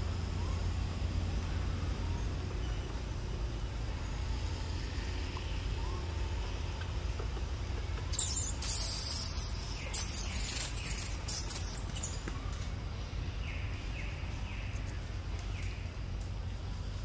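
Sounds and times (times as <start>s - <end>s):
low steady rumble: 0.0s - 17.0s
high-pitched cicada buzz: 8.1s - 12.2s.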